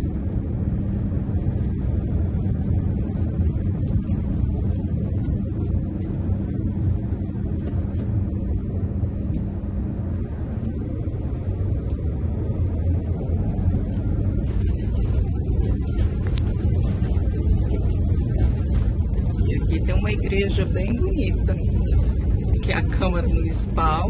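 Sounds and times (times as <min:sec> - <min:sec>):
engine and road rumble: 0:00.0 - 0:24.0
tyres on cobblestones: 0:10.2 - 0:24.0.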